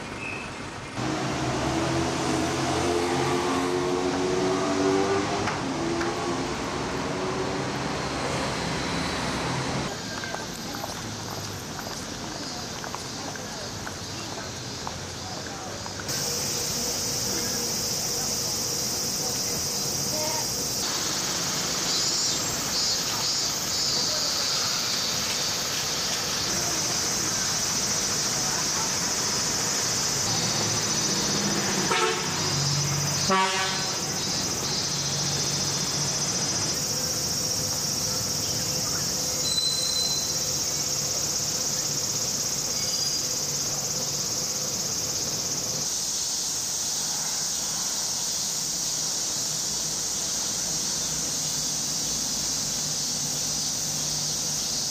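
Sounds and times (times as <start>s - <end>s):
cicadas droning: 0.0s - 54.9s
city street noise: 0.0s - 54.9s
horn-like toot: 31.8s - 32.6s, 33.2s - 34.1s.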